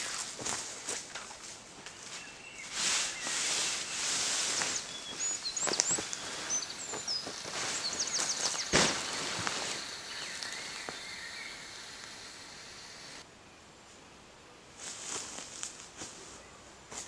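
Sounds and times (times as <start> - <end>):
tarp rustling: 0.0 - 10.8
footsteps in dry leaves: 0.0 - 11.1, 14.8 - 17.0
birds chirping: 1.8 - 13.2.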